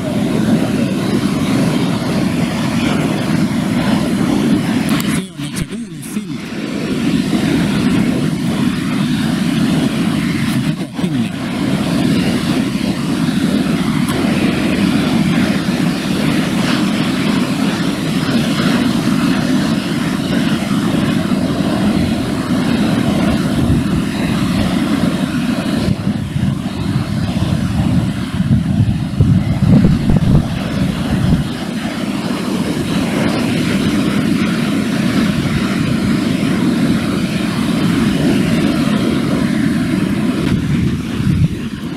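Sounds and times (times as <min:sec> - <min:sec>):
wind rumbling on microphone: 0:00.0 - 0:41.9.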